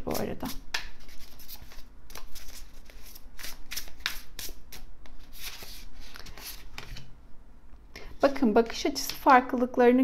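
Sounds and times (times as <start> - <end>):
cards being shuffled: 0.1 - 7.1.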